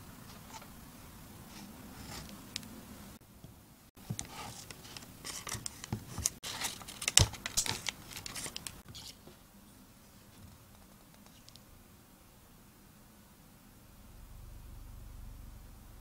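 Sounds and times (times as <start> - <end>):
knife cutting and scraping paper: 1.5 - 2.4, 4.2 - 9.2.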